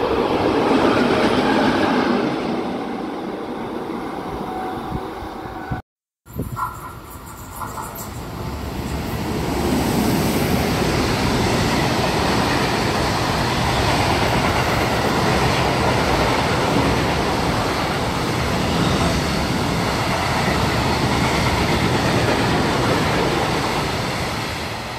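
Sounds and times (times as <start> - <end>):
freight train wheels clattering on rails: 6.6 - 24.8.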